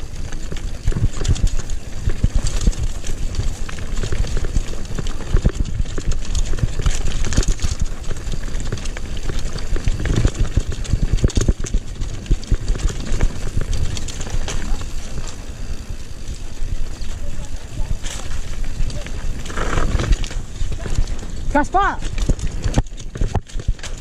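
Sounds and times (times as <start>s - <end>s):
mountain bike rattling over stones: 0.0s - 24.0s
steady rumble: 0.0s - 24.0s.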